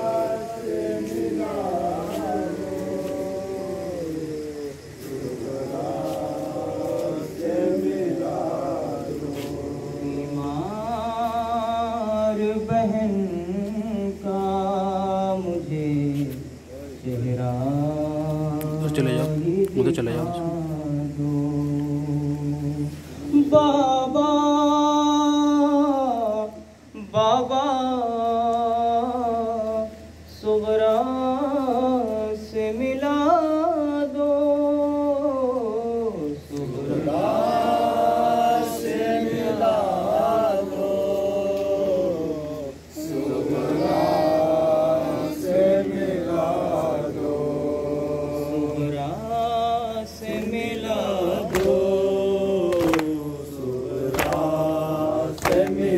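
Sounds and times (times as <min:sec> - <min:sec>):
group of mourners chanting: 0:00.0 - 0:12.8, 0:36.1 - 0:55.9
man chanting into a microphone: 0:08.4 - 0:36.6.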